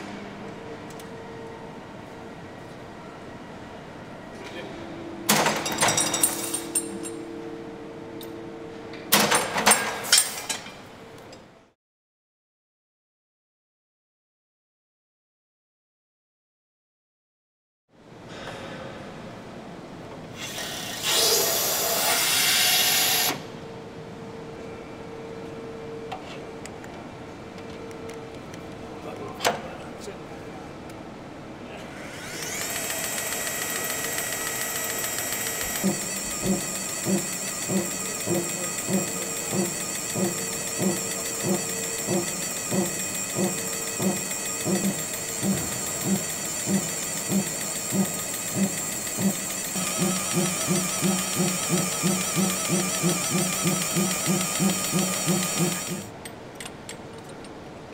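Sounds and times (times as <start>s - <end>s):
electric drill whine: 20.4s - 23.4s, 32.0s - 56.1s.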